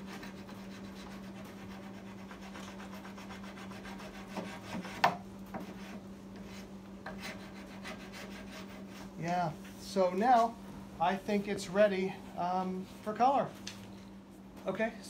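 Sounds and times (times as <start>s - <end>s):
metal file rasping on wood: 0.0s - 9.0s.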